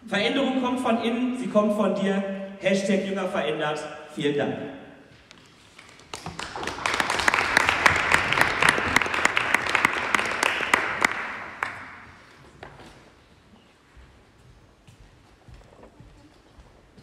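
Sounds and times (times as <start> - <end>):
audience applauding: 6.0 - 12.3.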